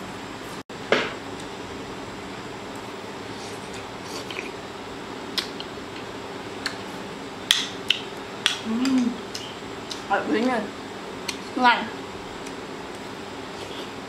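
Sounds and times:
person chewing: 3.3 - 4.6.

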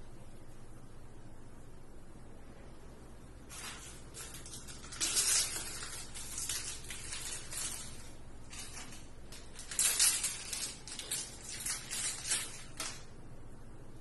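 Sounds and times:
faint low hum: 0.0 - 14.0
hands rustling a gauze wrapper: 3.5 - 13.0.

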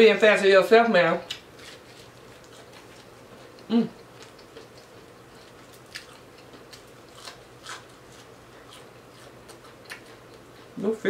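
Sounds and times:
fried fish crackling and crunching: 1.3 - 10.5.

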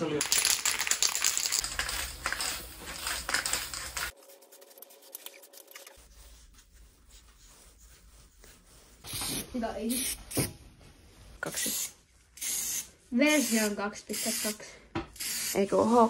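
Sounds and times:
scratchy handling noise: 1.1 - 9.6
spray paint can hissing: 1.3 - 4.2.

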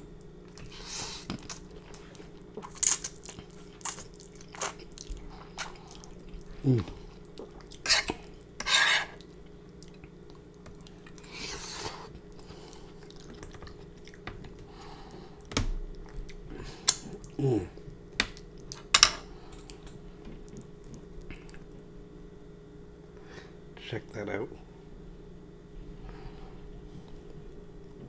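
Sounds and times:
faint steady hum: 0.0 - 28.0
wet chewing and slurping: 0.5 - 14.2.

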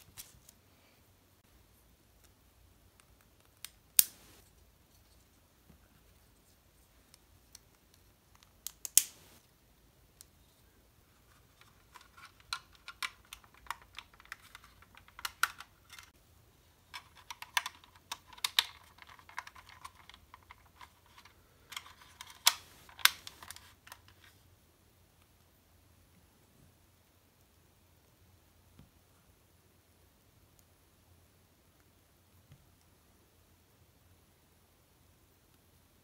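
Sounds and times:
plastic parts clicking: 11.6 - 16.1, 16.9 - 24.2.

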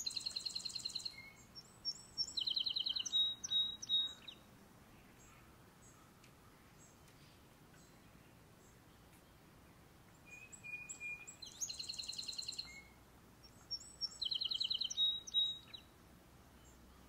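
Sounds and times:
sparrow singing with trill: 0.0 - 4.5, 10.2 - 15.9.

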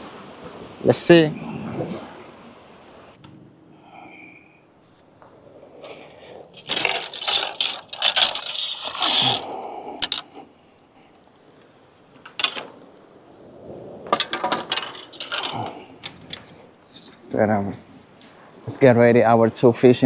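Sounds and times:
fishing reels clicking and scraping: 6.5 - 10.4, 14.6 - 16.6.

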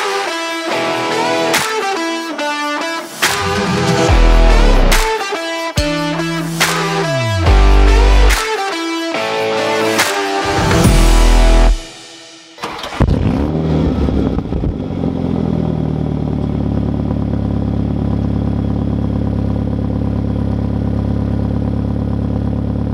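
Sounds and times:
engine starting and idling: 12.6 - 14.8.

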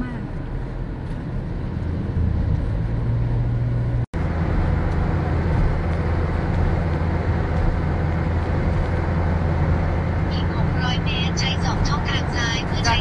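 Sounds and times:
car engine and tyres rumbling: 0.0 - 13.0.

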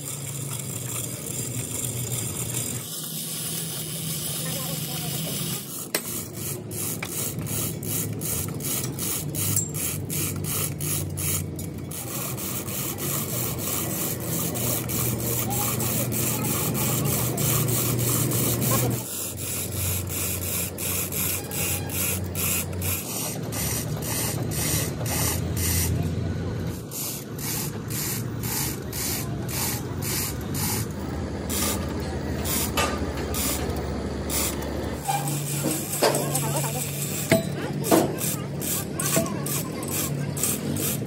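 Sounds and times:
metal scraping: 31.5 - 38.4.

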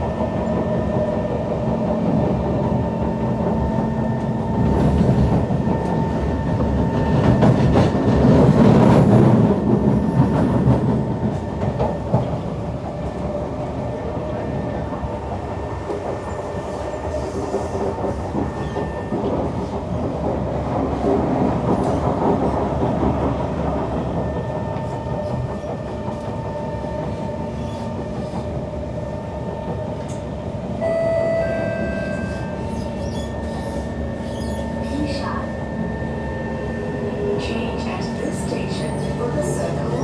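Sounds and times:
train wheels rumbling: 0.0 - 30.8
whining tones: 30.8 - 34.8.

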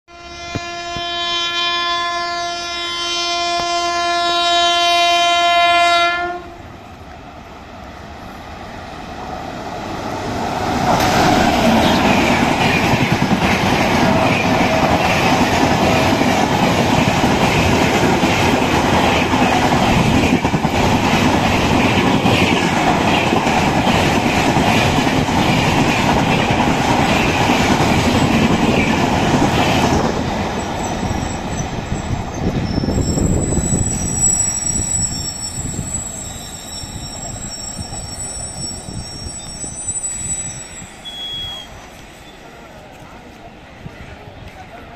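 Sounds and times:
locomotive horn blast: 0.1 - 6.6
train rushing past on rails: 0.1 - 44.9.

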